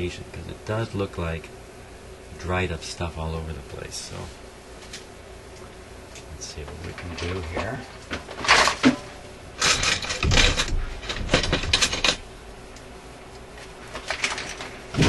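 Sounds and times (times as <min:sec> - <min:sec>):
hard objects clacking and scraping: 0:06.6 - 0:12.2.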